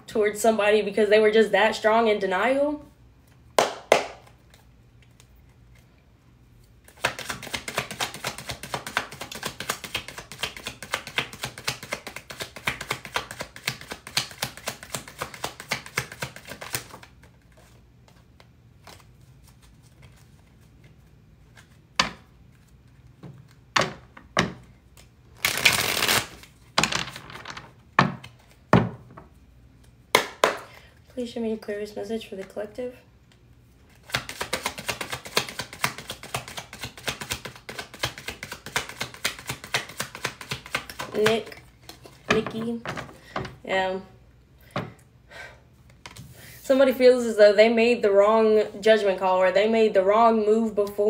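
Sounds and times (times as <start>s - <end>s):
cards being shuffled: 6.6s - 23.6s, 24.5s - 28.6s, 33.9s - 42.3s
card deck rustle: 6.9s - 21.8s, 25.0s - 26.6s.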